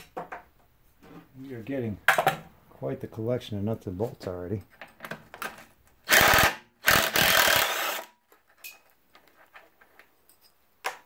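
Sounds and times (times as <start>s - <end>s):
impact driver running: 6.1s - 8.1s.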